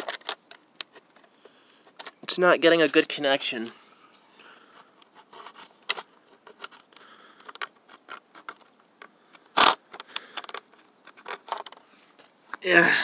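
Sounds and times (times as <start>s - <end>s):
fingers scraping and clicking plastic: 4.7s - 11.9s.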